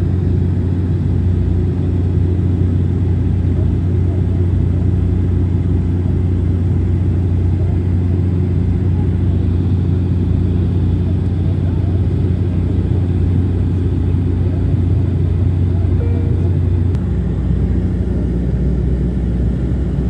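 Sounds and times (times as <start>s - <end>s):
turboprop airliner cabin drone: 0.0s - 20.0s
airflow noise: 4.6s - 20.0s.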